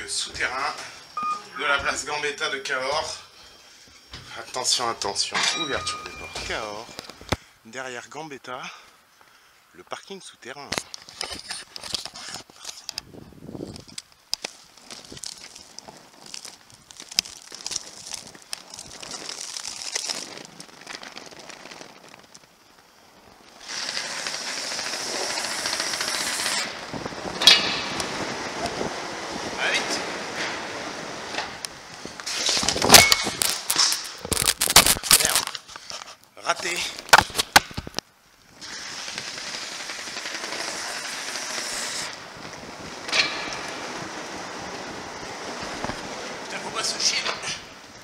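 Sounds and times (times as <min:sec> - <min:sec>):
wind on microphone: 0:13.0 - 0:14.0, 0:26.6 - 0:31.2
roller skate wheels rattling: 0:13.7 - 0:35.6, 0:38.6 - 0:47.1.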